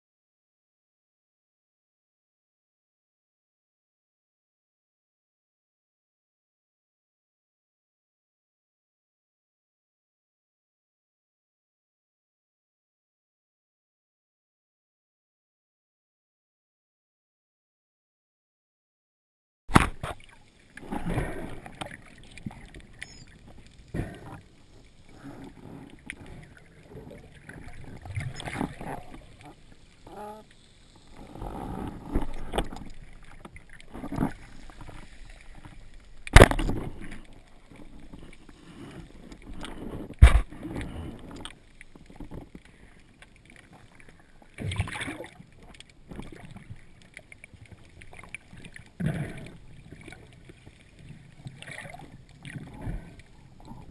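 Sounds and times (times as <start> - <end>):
underwater sloshing and bubbling: 19.7 - 53.9.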